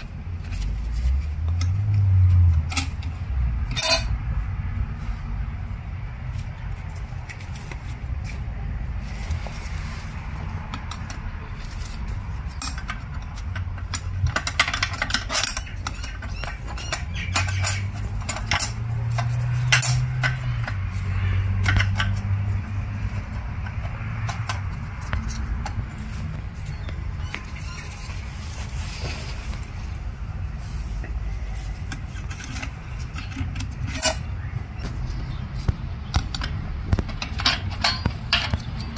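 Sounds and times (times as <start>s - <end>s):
metal parts clicking and clinking: 0.0s - 4.2s, 10.7s - 28.2s, 31.7s - 38.9s.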